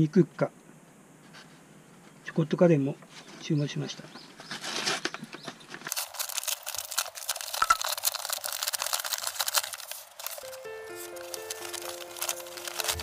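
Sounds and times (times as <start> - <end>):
paper being torn and crumpled: 5.9 - 13.0.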